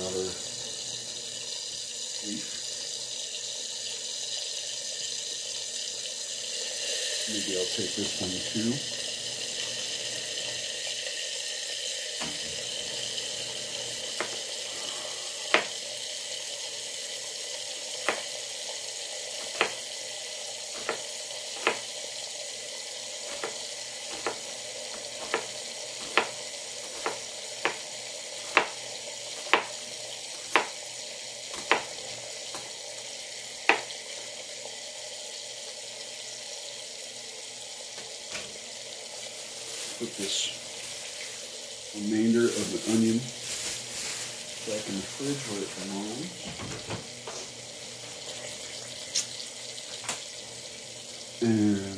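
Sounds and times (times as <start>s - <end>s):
bacon sizzling in skillet: 0.0s - 51.9s
knife chopping on cutting board: 14.2s - 14.4s, 15.5s - 15.8s, 18.0s - 18.4s, 19.4s - 19.8s, 20.8s - 22.0s, 23.3s - 30.8s, 31.5s - 32.8s, 33.6s - 34.0s.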